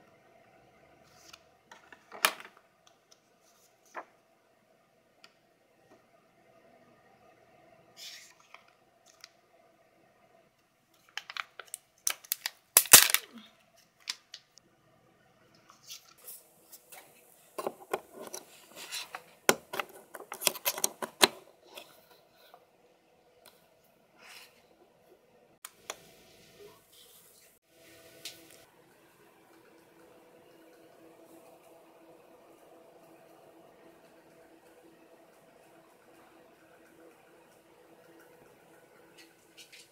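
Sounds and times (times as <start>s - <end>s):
paper and cards rustling: 15.7s - 22.1s.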